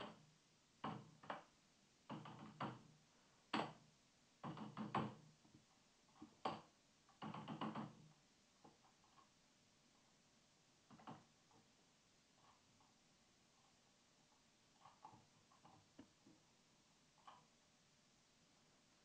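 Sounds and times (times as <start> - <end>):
computer keyboard typing: 2.1 - 2.9, 6.1 - 8.1.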